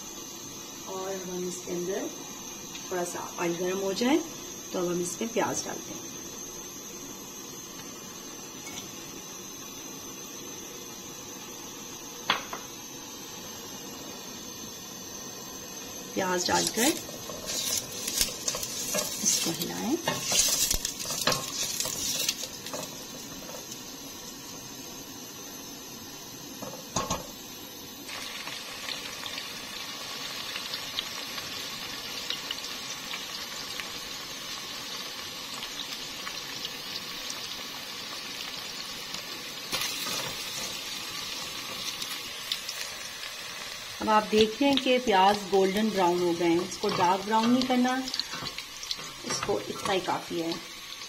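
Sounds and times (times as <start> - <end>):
onions sizzling in oil: 0.0 - 51.0
wooden spatula scraping pot: 16.6 - 22.9.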